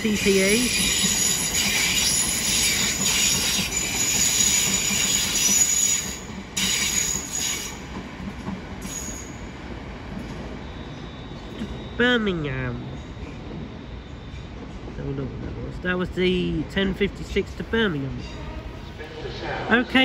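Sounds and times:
train wheels squealing: 0.0 - 8.0, 8.8 - 9.6, 10.2 - 12.2, 12.8 - 14.8
train rumble: 0.0 - 20.0.

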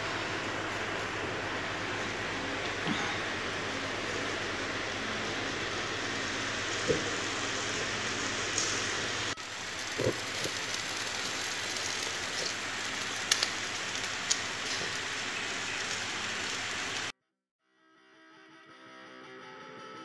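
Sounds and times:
chicken wings sizzling on grill: 0.0 - 17.1
fat popping and crackling: 9.4 - 16.6.

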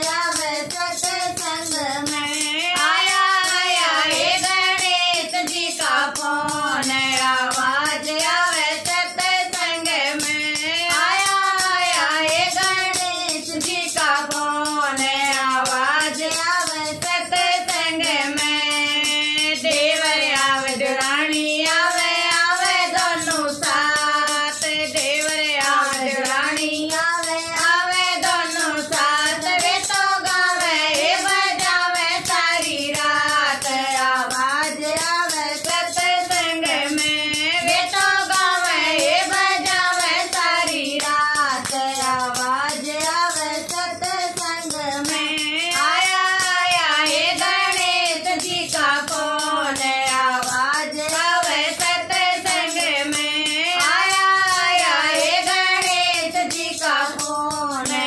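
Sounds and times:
hand clapping: 0.0 - 58.0
women singing together: 0.0 - 58.0.

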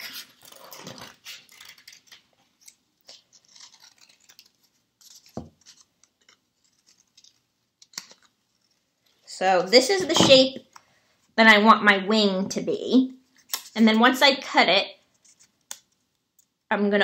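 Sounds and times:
scissors snipping paper: 0.0 - 8.3.

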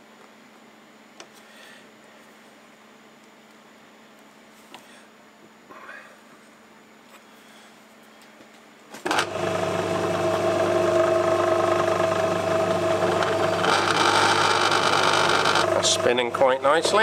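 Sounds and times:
lathe motor whining: 9.1 - 17.0.

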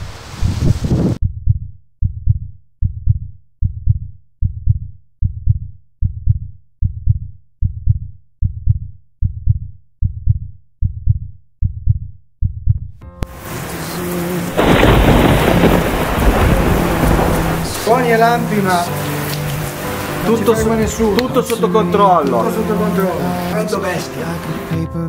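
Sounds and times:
heavy rain: 0.0 - 1.2, 13.3 - 24.7
heartbeat thumps: 1.2 - 13.0
thunder rumble: 13.4 - 19.4.

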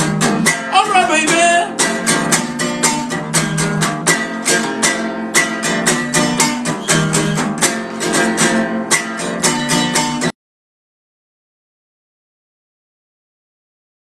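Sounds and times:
acoustic guitar strumming: 0.0 - 10.4.

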